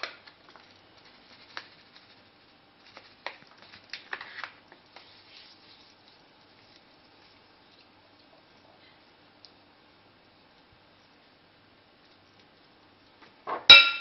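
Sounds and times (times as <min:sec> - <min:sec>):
plastic packet crinkling: 0:00.0 - 0:02.2, 0:02.8 - 0:07.4
hands rubbing meat squishing: 0:00.0 - 0:08.6.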